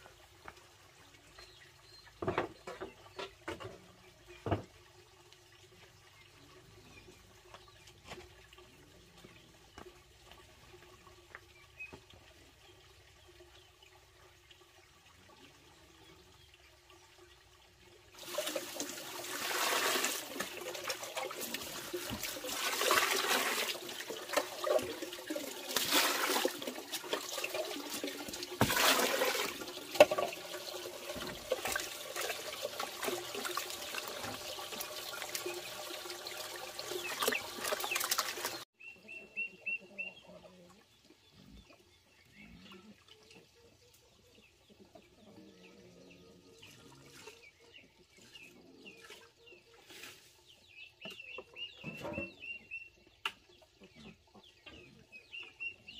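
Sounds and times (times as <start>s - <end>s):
hands sloshing in bucket of water: 18.2s - 30.3s, 36.9s - 38.6s
chickens clucking: 36.9s - 50.4s, 51.0s - 55.9s.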